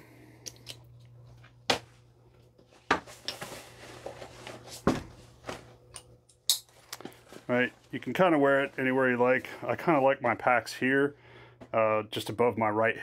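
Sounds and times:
fabric and webbing rustling: 6.6s - 10.2s.

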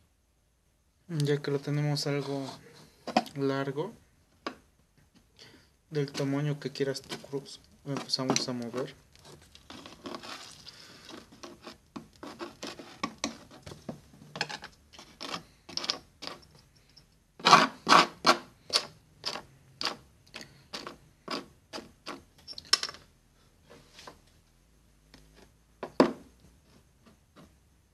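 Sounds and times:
metal scraping on wooden tabletop: 2.0s - 3.3s, 6.9s - 16.6s, 17.4s - 23.0s.

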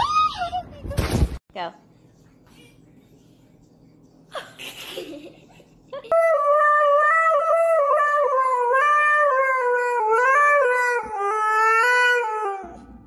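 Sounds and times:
dog howling: 6.1s - 13.0s.

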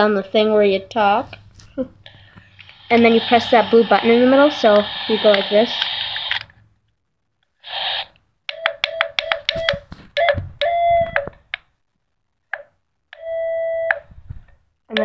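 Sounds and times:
static hiss: 1.9s - 6.7s, 7.6s - 8.2s
electronic morse code beeps: 7.8s - 11.3s.

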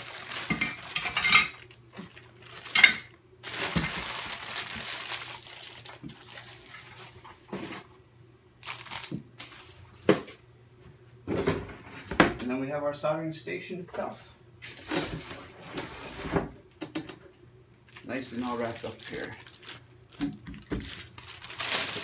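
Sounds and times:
plastic bag crinkling: 0.0s - 7.9s, 8.6s - 10.0s, 17.8s - 22.0s.

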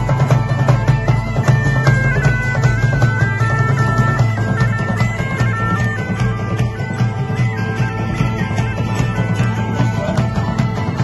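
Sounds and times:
large drum beating: 0.0s - 11.0s
shawm playing reedy melody: 0.0s - 11.0s
strummed string instrument: 0.0s - 11.0s.

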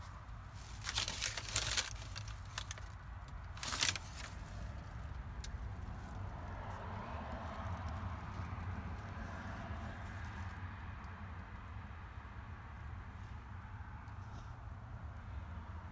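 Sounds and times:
paper crinkling and rustling: 0.0s - 4.8s.

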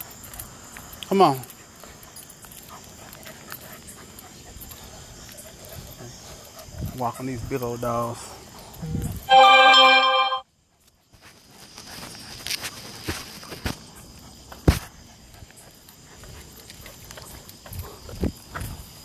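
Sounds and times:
footsteps on paved path: 0.0s - 9.3s, 10.7s - 19.0s
loud steady tone: 9.3s - 10.4s.

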